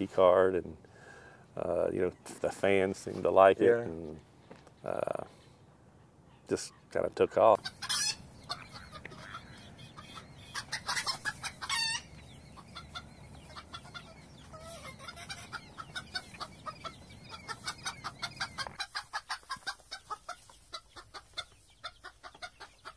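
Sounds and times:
chickens clucking: 0:00.1 - 0:22.9
chicken squawk: 0:07.6 - 0:22.9.

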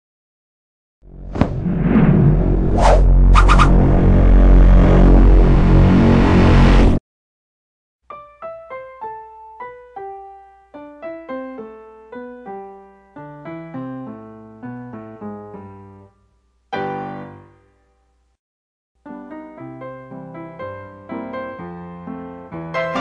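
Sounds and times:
piano melody: 0:08.1 - 0:16.1, 0:16.7 - 0:17.6, 0:19.0 - 0:23.0.

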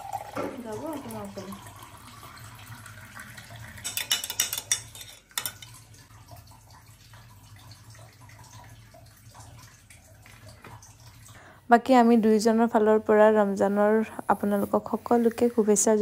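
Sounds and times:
water poured into glass: 0:00.0 - 0:06.8
spoon clinking against glass: 0:03.8 - 0:05.7.

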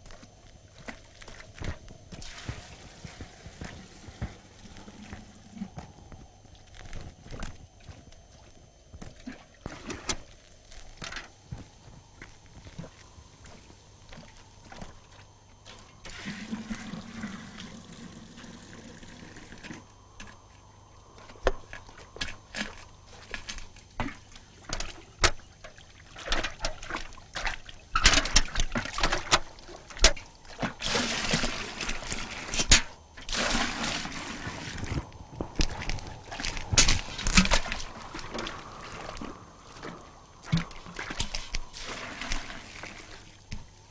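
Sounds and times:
water splashing and pouring: 0:00.8 - 0:05.2, 0:12.8 - 0:20.4, 0:21.2 - 0:43.9.

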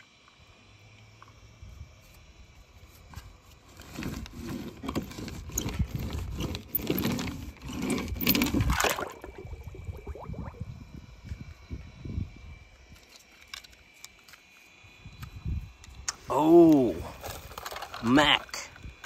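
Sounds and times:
toy bus scraping on paper: 0:03.2 - 0:08.5.

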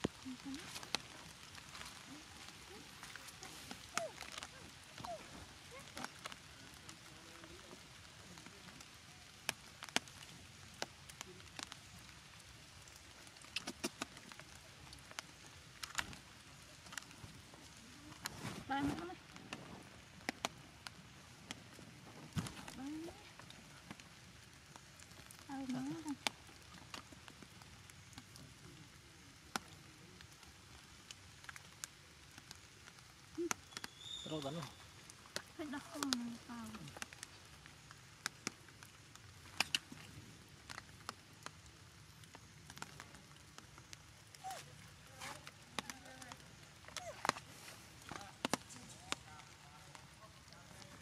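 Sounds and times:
faint steady hiss: 0:00.0 - 0:51.0
water dripping: 0:00.0 - 0:51.0
water drops tapping on umbrella: 0:13.3 - 0:17.1, 0:17.7 - 0:24.1, 0:35.2 - 0:41.6, 0:42.2 - 0:50.0.

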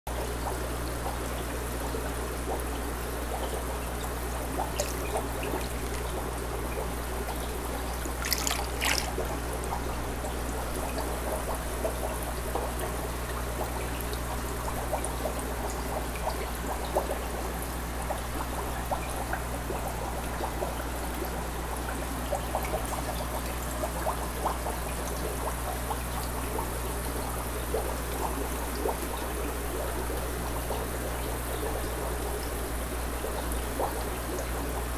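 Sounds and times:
low steady hum: 0:02.4 - 0:11.0
water trickling: 0:03.2 - 0:11.0.

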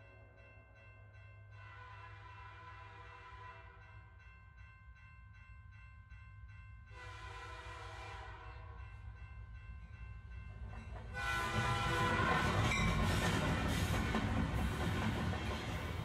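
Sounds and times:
low rumble of moving train: 0:00.0 - 0:16.0
train whistle: 0:01.6 - 0:03.8, 0:07.0 - 0:08.7, 0:11.2 - 0:13.1.

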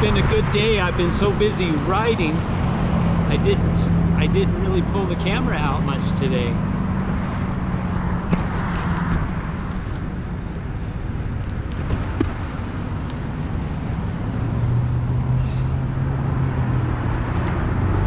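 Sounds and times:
passing car engines: 0:00.0 - 0:18.0
tyre noise: 0:11.3 - 0:14.7.

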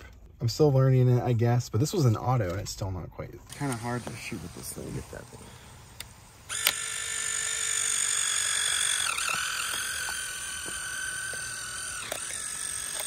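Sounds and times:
high screeching film ejection whine: 0:03.5 - 0:13.0
camera shutter click: 0:06.0 - 0:07.0.

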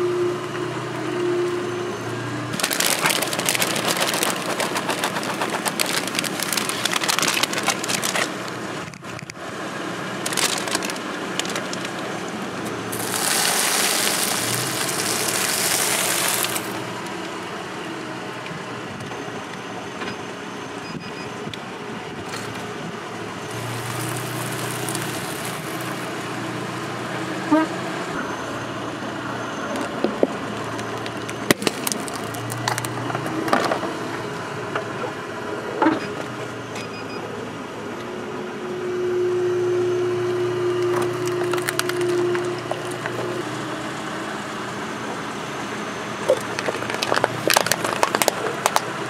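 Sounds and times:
tyre crunching over debris: 0:02.6 - 0:08.6, 0:10.2 - 0:12.1, 0:12.9 - 0:16.8, 0:41.0 - 0:43.4.

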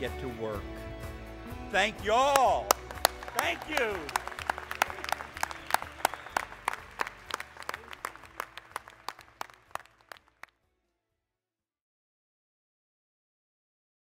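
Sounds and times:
applause: 0:02.0 - 0:10.6.

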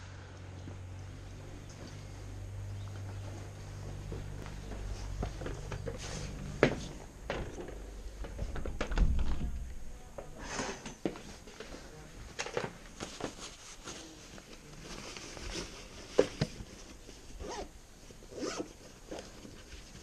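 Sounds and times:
fabric rustling: 0:02.0 - 0:10.5, 0:11.2 - 0:20.0
zippers being pulled: 0:17.4 - 0:17.7, 0:18.3 - 0:19.2.

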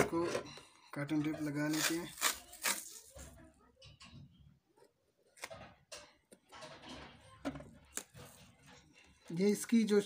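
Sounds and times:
packing tape ripping off roll: 0:01.7 - 0:03.1
tape rubbing: 0:01.7 - 0:03.1.

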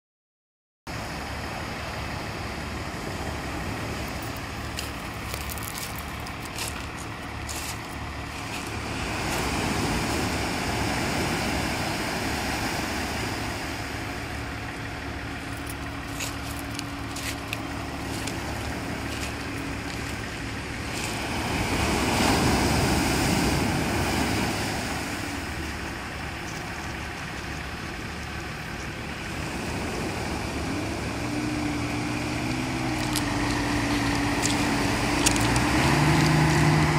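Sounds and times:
faint boat engine hum: 0:00.9 - 0:36.9
surf breaking on pebble beach: 0:20.8 - 0:25.6
stones rattling in backwash: 0:32.9 - 0:36.6.

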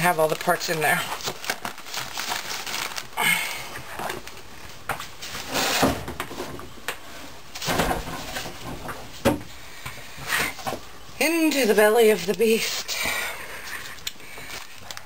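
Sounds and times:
rustling: 0:00.3 - 0:08.7.

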